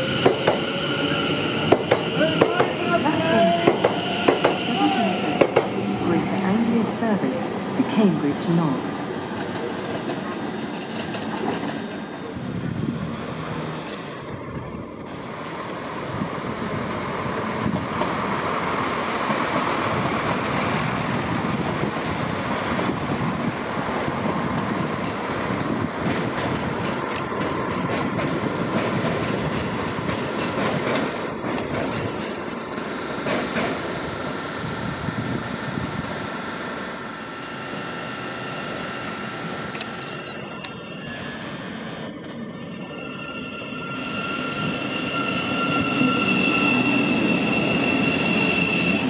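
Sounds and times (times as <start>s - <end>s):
train rumbling: 0.0s - 49.0s
train wheels clacking over rail joints: 26.0s - 33.9s.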